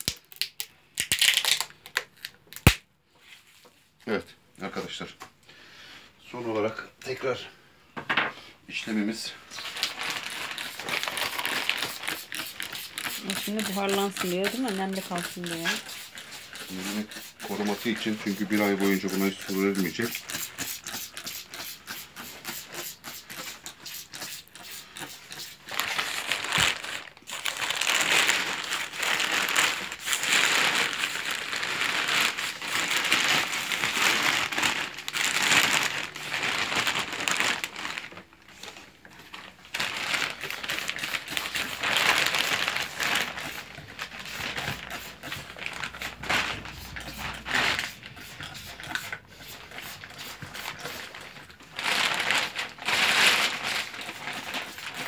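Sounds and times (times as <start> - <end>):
plastic bag rustling: 9.4 - 20.1, 25.2 - 55.0.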